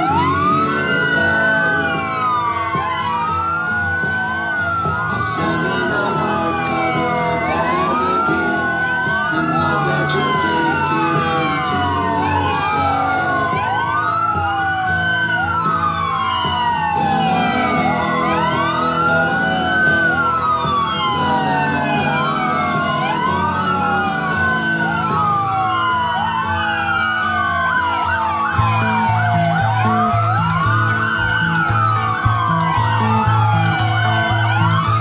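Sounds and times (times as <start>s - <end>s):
emergency sirens wailing: 0.0s - 35.0s.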